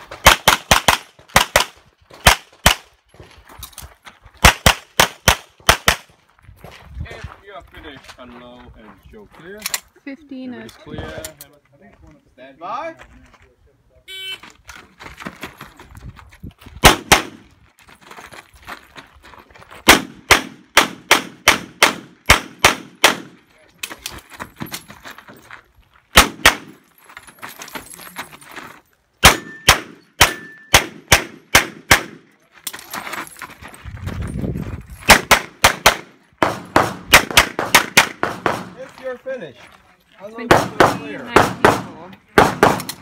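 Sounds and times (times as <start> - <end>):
pistol shots: 0.2 - 2.9, 16.8 - 17.4, 19.9 - 23.4, 26.1 - 26.8, 29.2 - 32.2, 35.1 - 38.8, 40.5 - 43.0
steel target ringing: 29.3 - 30.8.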